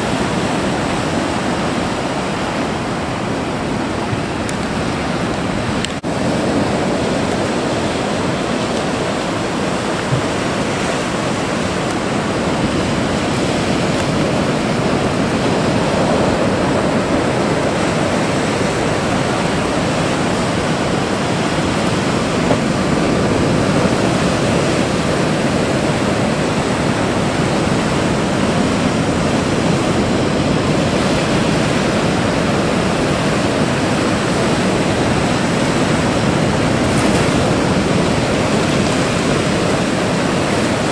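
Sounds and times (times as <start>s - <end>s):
ocean surf breaking on rocks: 0.0s - 40.9s.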